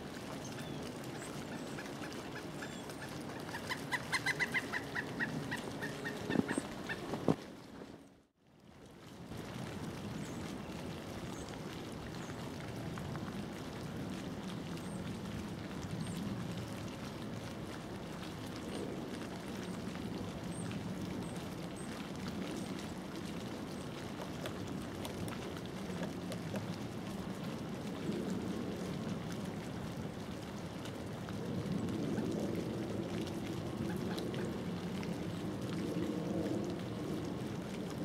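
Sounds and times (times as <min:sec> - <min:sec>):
woodpecker tapping on bark: 0:03.5 - 0:07.1.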